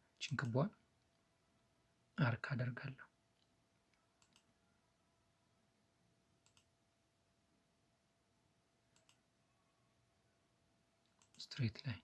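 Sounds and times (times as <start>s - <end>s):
faint computer mouse clicks: 3.4s - 4.5s, 6.4s - 6.7s, 8.9s - 9.2s, 11.0s - 11.5s.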